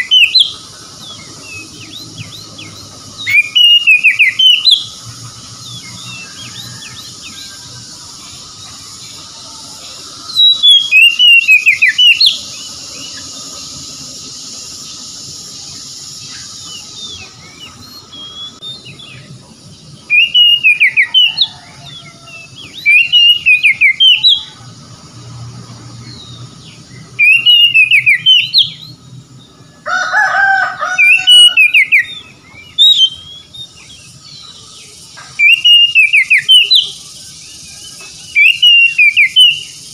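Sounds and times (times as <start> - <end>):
bird singing clear whistles: 0.0 - 5.0, 10.3 - 19.3, 20.0 - 24.6, 26.1 - 29.0, 31.0 - 39.9
steady high hiss: 0.0 - 39.9.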